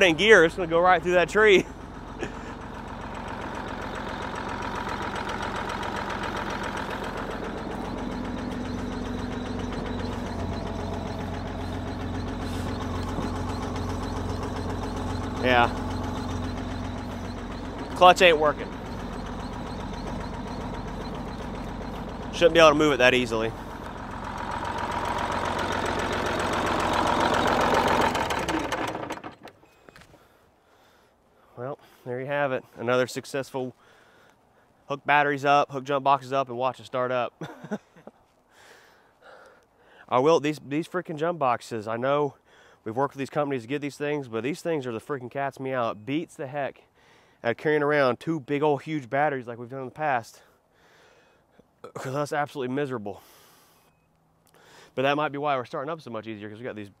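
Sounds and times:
diesel truck engine idling: 0:00.0 - 0:29.6.

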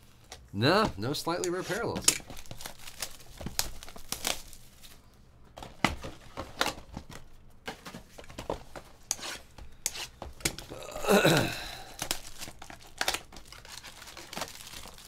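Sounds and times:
cardboard and wrapper crinkling: 0:01.1 - 0:08.8, 0:11.9 - 0:15.0.

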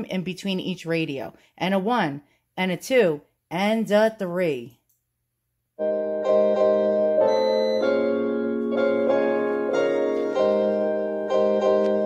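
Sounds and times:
slow keyboard chords from speaker: 0:05.8 - 0:12.0.

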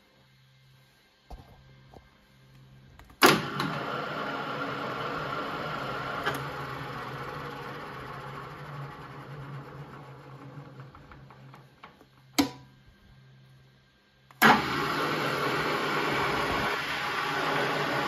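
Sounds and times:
drill press running: 0:03.2 - 0:12.1, 0:14.4 - 0:18.0.

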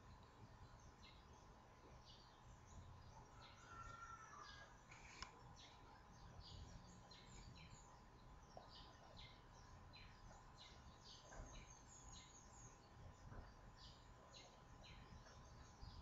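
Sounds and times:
faint steady hum: 0:00.0 - 0:16.0
faint click: 0:04.9 - 0:05.4.

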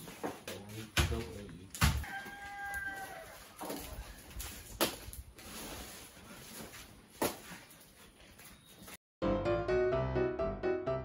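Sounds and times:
piano music: 0:09.2 - 0:11.0.

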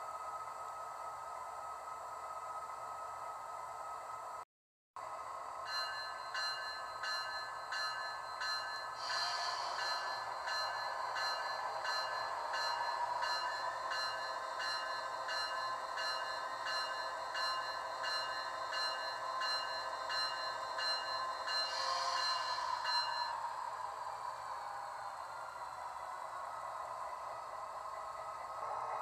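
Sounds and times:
locomotive bell ringing: 0:05.7 - 0:23.5.

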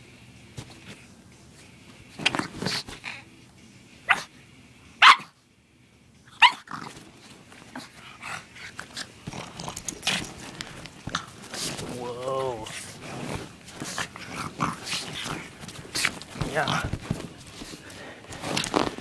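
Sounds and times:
dog barking: 0:04.1 - 0:04.3, 0:05.0 - 0:05.3, 0:06.4 - 0:06.7.

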